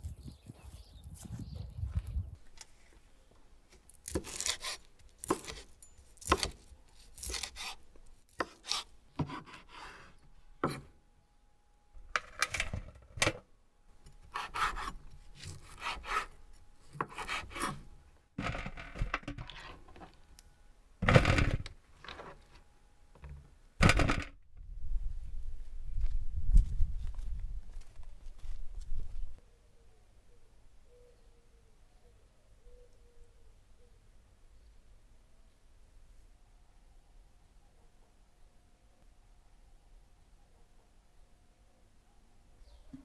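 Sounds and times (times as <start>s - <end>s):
knife cutting on wooden board: 4.1s - 7.8s, 8.4s - 10.0s, 14.3s - 16.3s, 16.9s - 17.8s.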